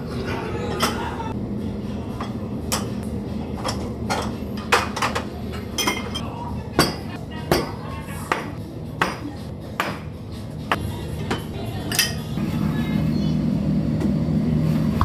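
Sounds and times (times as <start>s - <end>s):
low background hum: 0.0s - 15.0s
ceramic bowls clinking: 3.6s - 7.2s, 11.2s - 12.3s.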